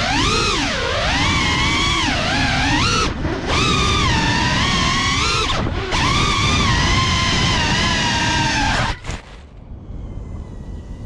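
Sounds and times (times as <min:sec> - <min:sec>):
quadcopter motors whining: 0:00.0 - 0:11.0
rush of air: 0:09.0 - 0:11.0.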